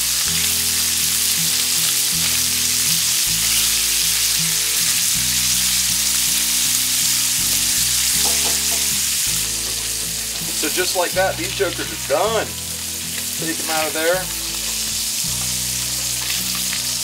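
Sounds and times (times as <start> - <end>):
fish sizzling in a skillet: 0.0 - 17.0
spatula turning food in pan: 0.0 - 17.0.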